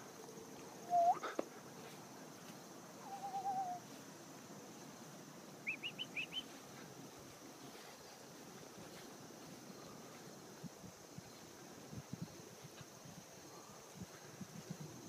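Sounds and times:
quick rising whistled chirps: 0.8 - 1.2, 3.0 - 3.8, 5.6 - 6.5
wavering whistled tone: 0.8 - 1.2, 3.0 - 3.8.

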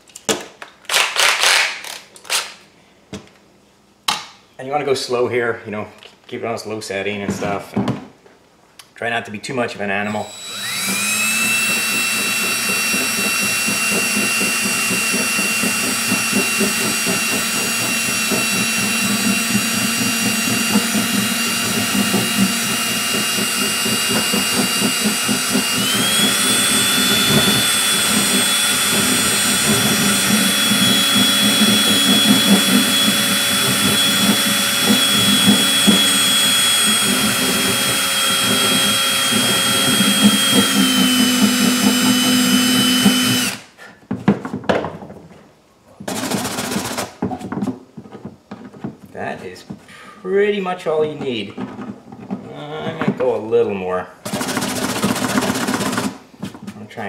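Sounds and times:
rotary tool motor whine: 10.2 - 43.7
burr grinding plastic: 10.5 - 45.1.

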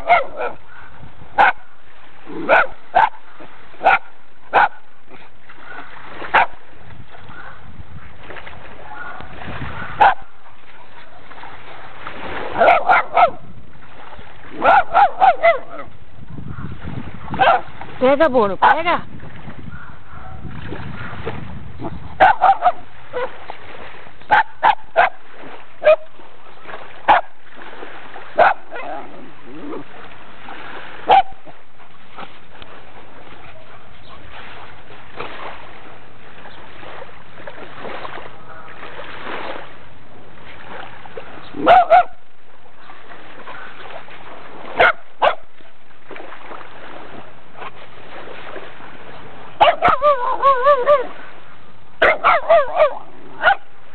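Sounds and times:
dog barking and yipping: 0.0 - 0.8, 1.4 - 1.6, 2.5 - 3.2, 3.8 - 4.8, 6.3 - 6.5, 10.0 - 10.3, 12.6 - 13.4, 14.6 - 15.9, 17.4 - 17.7, 22.2 - 23.3, 24.3 - 25.2, 28.4 - 29.0, 31.1 - 31.4, 41.6 - 42.2, 44.8 - 45.4, 49.6 - 51.1, 52.0 - 53.6.

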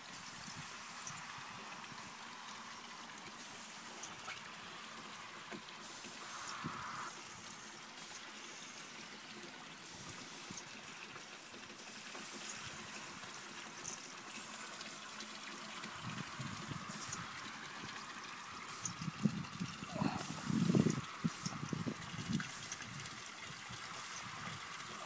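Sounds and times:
wine trickling and streaming: 0.0 - 25.0.

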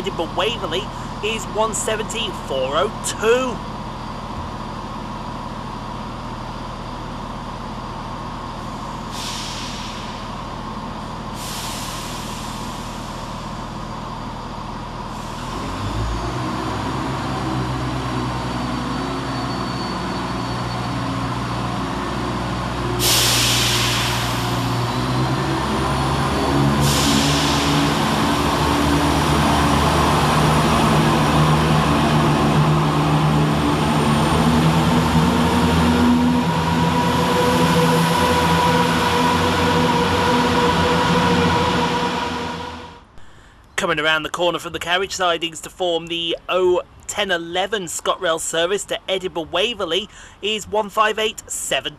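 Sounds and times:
diesel train engine: 0.0 - 51.9
air hissing: 9.1 - 10.3, 11.4 - 13.5, 23.0 - 25.0.

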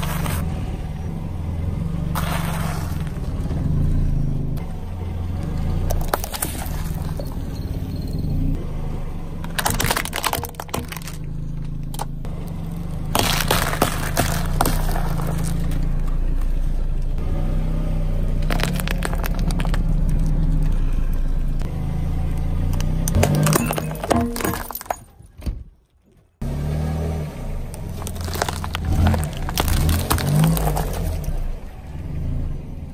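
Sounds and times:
car engine humming: 0.0 - 25.4, 26.3 - 32.9
tyre crushing plastic wrappers: 9.4 - 11.2, 13.1 - 15.8, 18.4 - 20.3, 27.7 - 31.4.

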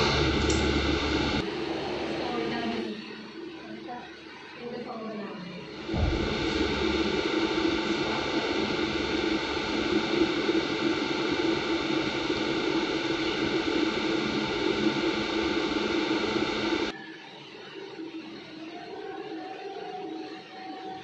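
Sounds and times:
low hum: 0.0 - 16.9
steady loud hiss: 5.7 - 16.9.

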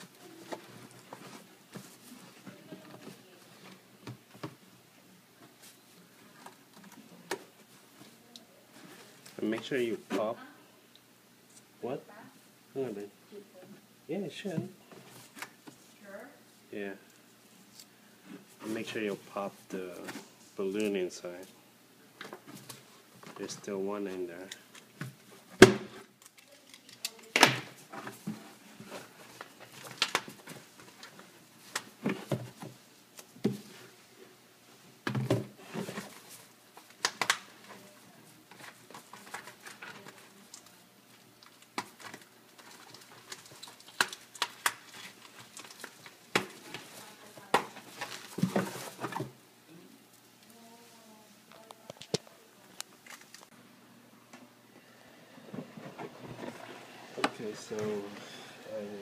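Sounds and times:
stiff paper crinkling and rustling: 35.6 - 49.4, 51.5 - 53.6.

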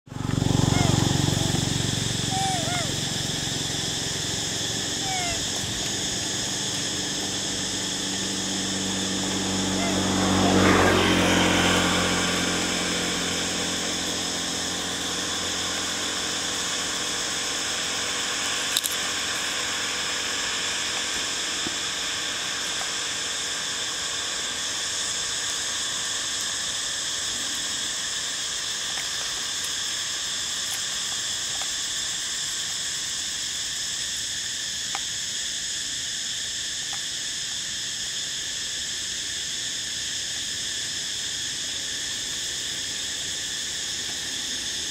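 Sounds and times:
high insect chorus: 0.1 - 44.9.

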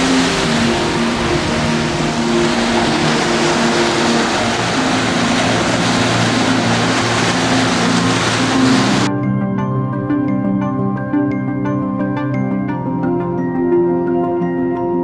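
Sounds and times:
ocean waves breaking: 0.0 - 9.1
background music: 0.0 - 15.0.

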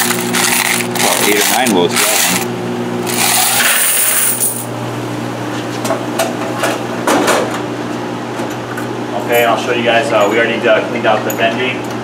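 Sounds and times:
coins jingling in metal coin box: 0.0 - 2.4, 3.1 - 4.7
low machine hum: 0.0 - 12.0.

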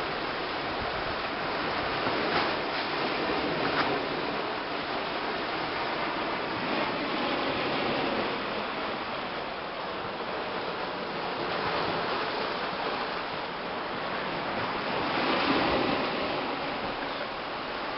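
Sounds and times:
waves washing onto stony shore: 0.0 - 17.9.

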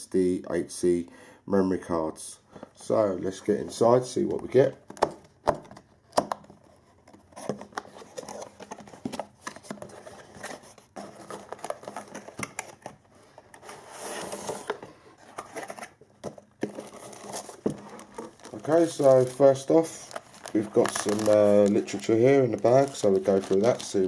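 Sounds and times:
rustling cardboard scrape: 6.7 - 16.0, 16.6 - 22.0.

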